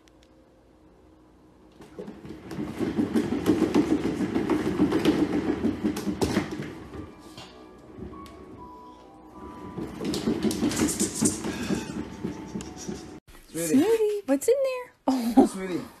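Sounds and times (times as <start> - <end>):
exercise wheel rattling: 1.8 - 7.1, 9.4 - 13.2.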